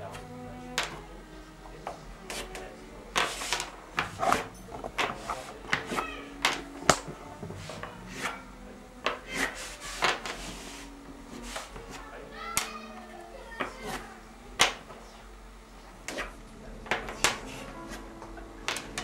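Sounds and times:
pencil scratching on paper: 2.3s - 2.6s, 3.2s - 6.0s, 9.2s - 12.0s.

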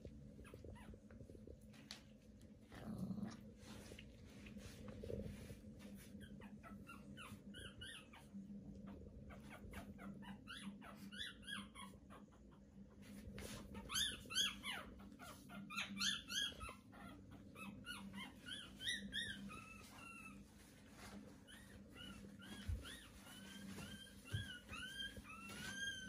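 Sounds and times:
dogs whimpering: 5.9s - 12.8s, 13.4s - 26.0s.

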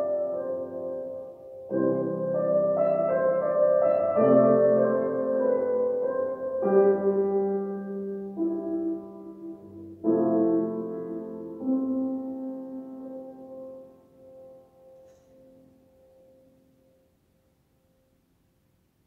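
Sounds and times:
piano chords: 0.0s - 18.1s.

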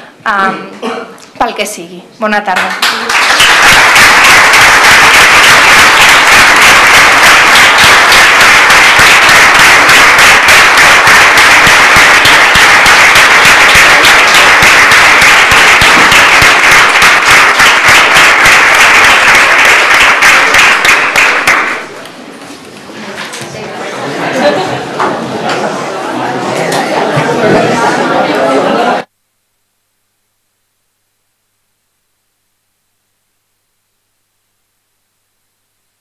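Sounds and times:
people applauding: 2.5s - 22.0s.

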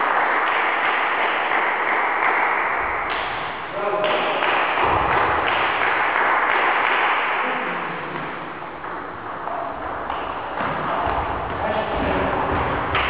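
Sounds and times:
applause echoing in a hall: 0.0s - 8.4s.

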